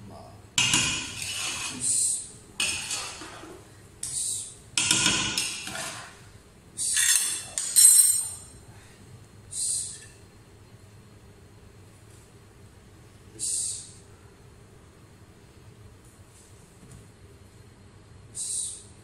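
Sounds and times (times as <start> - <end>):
metal spoon scraping a pot: 0.6 - 2.0, 2.6 - 3.6.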